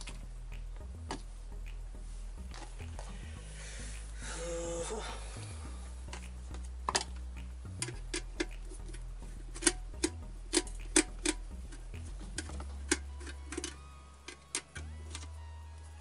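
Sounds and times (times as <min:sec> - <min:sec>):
low steady hum: 0:00.0 - 0:16.0
tools clicking and tapping: 0:06.1 - 0:15.4.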